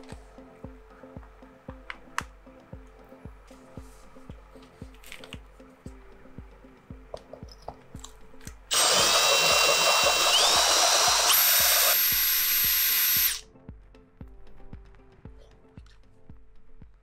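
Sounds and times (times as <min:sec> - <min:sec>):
background music with steady beat: 0:00.0 - 0:17.0
drill hole saw grinding ceramic: 0:08.7 - 0:13.4.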